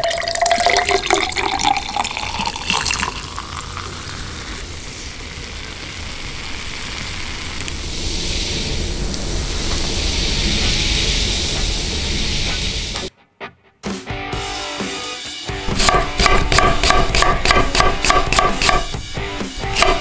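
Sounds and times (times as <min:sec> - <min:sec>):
water poured into a glass: 0:00.0 - 0:05.0
fizzing hiss of bubbles: 0:00.0 - 0:13.0.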